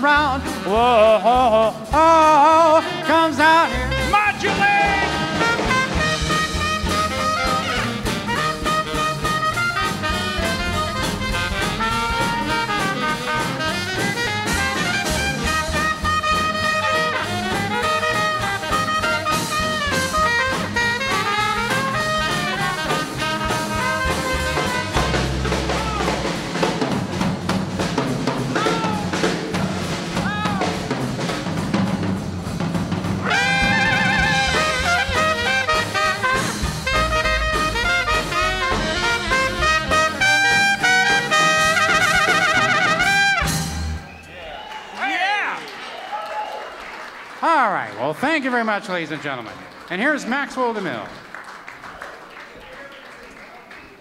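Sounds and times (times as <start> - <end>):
trumpet: 0.0 - 26.7, 33.1 - 44.2
saxophone: 0.0 - 27.3, 33.1 - 44.2
upright bass: 0.0 - 44.0
swing jazz band playing: 0.0 - 44.2, 47.4 - 52.0
drum kit: 0.0 - 44.3.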